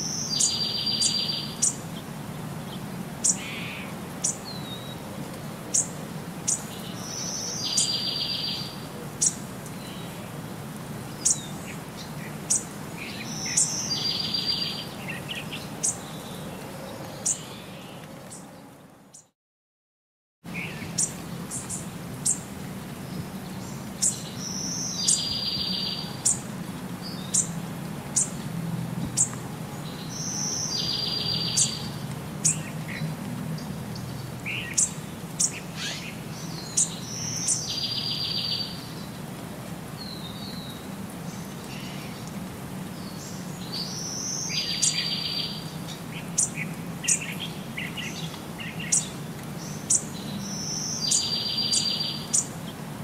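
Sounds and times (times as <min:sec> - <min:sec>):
small birds chirping: 0:00.0 - 0:05.0, 0:05.7 - 0:10.4, 0:11.0 - 0:19.3, 0:20.5 - 0:28.4, 0:29.0 - 0:53.0.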